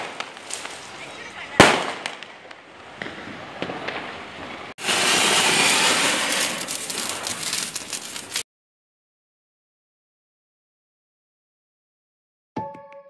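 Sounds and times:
firework hissing and crackling: 0.0 - 8.4.

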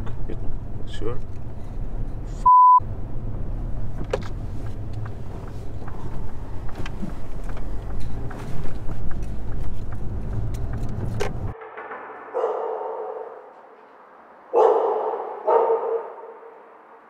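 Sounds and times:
engine and road rumble: 0.0 - 12.7.

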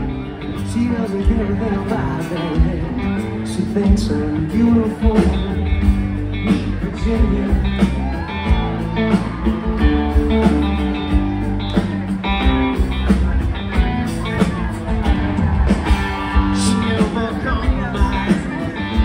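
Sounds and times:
person singing: 0.0 - 8.6, 14.3 - 19.0
live rock band playing: 0.0 - 19.0.

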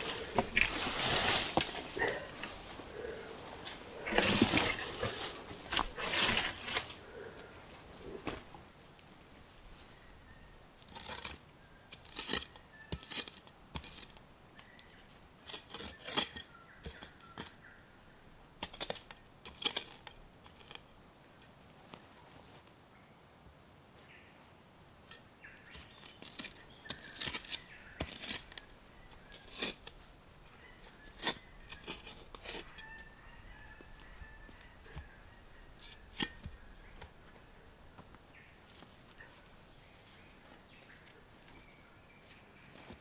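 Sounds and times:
sticks and leaves crackling: 0.0 - 9.1.

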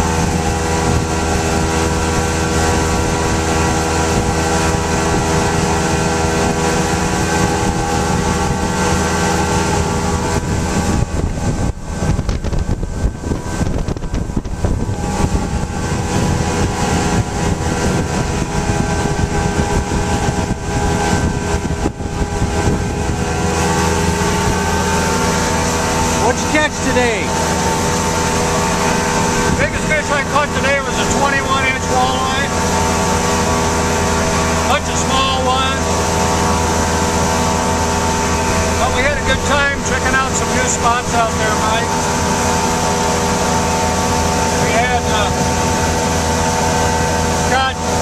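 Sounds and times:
boat hull and wake rushing: 0.0 - 48.0
outboard motor running: 0.0 - 48.0
water spray and wind: 0.0 - 48.0.

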